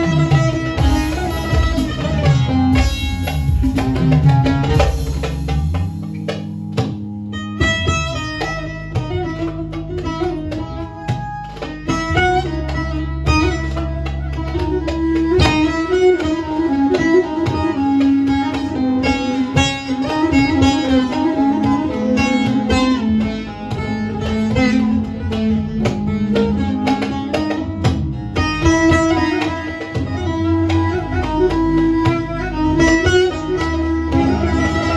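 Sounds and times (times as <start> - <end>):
low steady bass: 0.0 - 18.0, 22.0 - 34.9
plucked lute running notes: 0.0 - 34.9.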